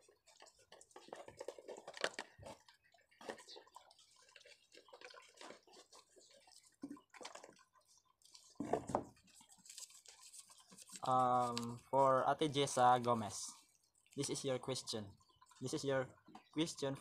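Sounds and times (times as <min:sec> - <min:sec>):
paper crinkling and rustling: 0:08.2 - 0:12.0.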